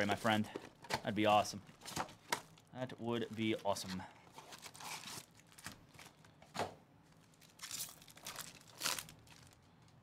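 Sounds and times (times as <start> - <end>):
plastic wrapper crinkling and tearing: 4.4 - 6.3, 7.1 - 10.0.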